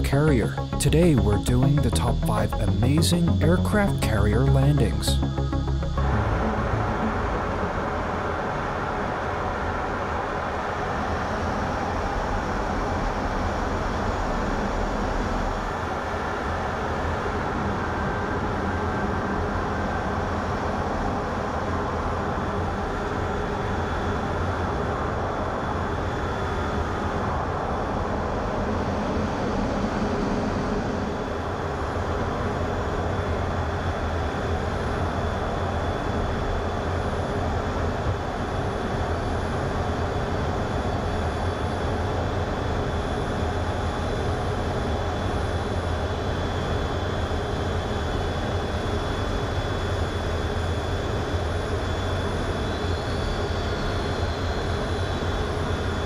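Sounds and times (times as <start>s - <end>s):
high-pitched whine: 0.0s - 56.0s
jet engine drone: 0.0s - 56.0s.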